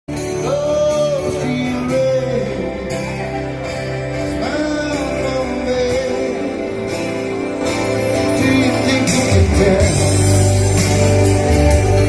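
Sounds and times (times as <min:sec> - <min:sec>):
acoustic guitar: 0:00.1 - 0:12.0
man singing long held notes: 0:04.3 - 0:07.2, 0:08.1 - 0:10.4.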